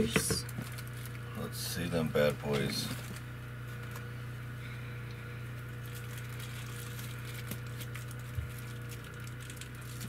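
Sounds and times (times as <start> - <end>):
low hum: 0.0 - 10.0
pouch rustling and crinkling: 5.8 - 10.0.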